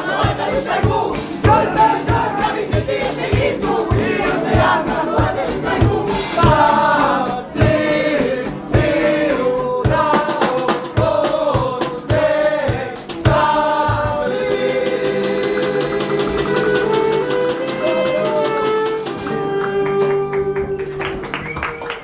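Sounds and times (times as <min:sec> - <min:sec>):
steady low beat: 0:00.0 - 0:17.3
group singing a chorus: 0:00.0 - 0:17.9
saxophones playing long notes: 0:15.6 - 0:21.3.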